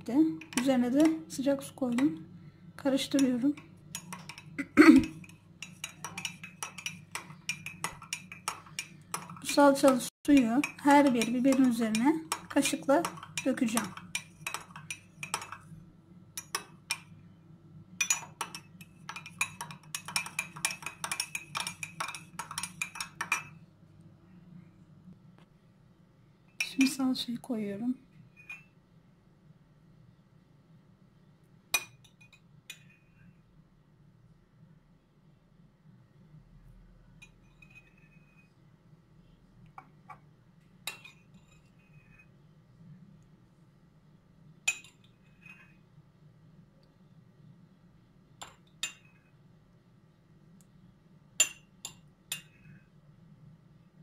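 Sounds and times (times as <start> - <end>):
spoon clinking in glass mug: 3.9 - 15.7, 18.0 - 23.6.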